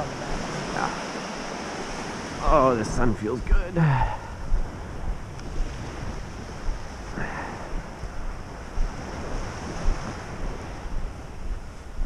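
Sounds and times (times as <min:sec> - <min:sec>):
ocean surf breaking: 0:00.0 - 0:12.0
wind buffeting microphone: 0:00.0 - 0:12.0.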